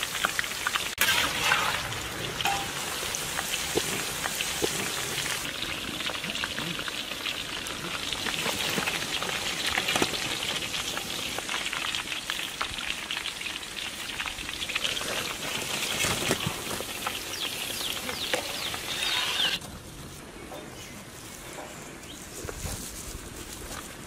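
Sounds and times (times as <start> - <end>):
food deep-frying in hot oil: 0.0 - 19.6.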